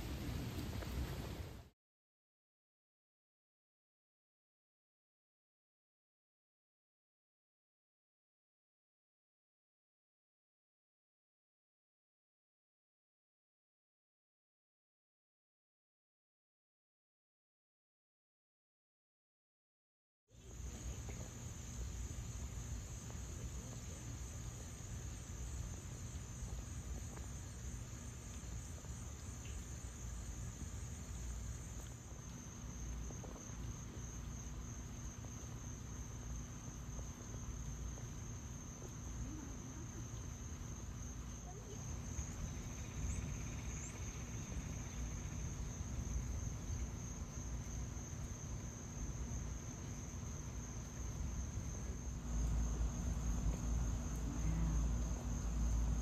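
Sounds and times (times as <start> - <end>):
insects trilling: 20.4 - 56.0.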